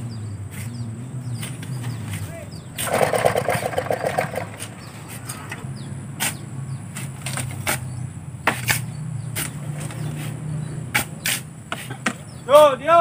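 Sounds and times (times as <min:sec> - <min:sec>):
shovel scraping in wet sand: 0:08.5 - 0:12.0.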